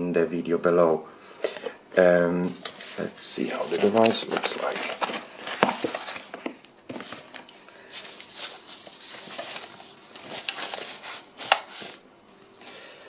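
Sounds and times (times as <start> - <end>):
wrapping sheet rustling: 2.6 - 12.6.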